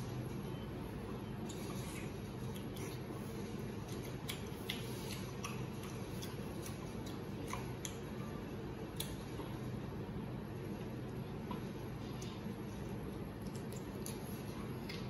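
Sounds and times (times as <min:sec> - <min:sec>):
steady low hum: 0:00.0 - 0:15.0
wet chewing clicks and smacks: 0:01.4 - 0:08.2, 0:08.9 - 0:09.8, 0:11.0 - 0:15.0.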